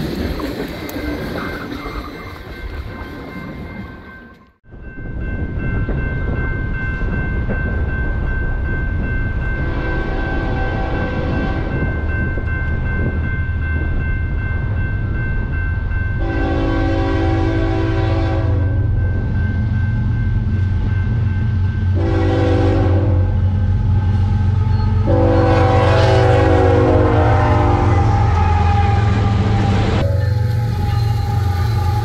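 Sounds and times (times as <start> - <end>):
diesel locomotive engine rumble: 0.0 - 32.0
train rolling: 0.0 - 32.0
train air horn blasts: 9.7 - 11.8, 16.2 - 18.8, 22.0 - 32.0.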